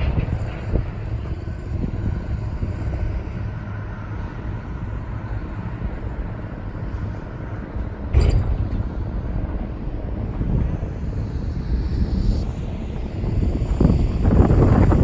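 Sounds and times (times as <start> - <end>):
construction machinery rumbling: 0.0 - 15.0
sharp metallic clank: 8.1 - 8.8.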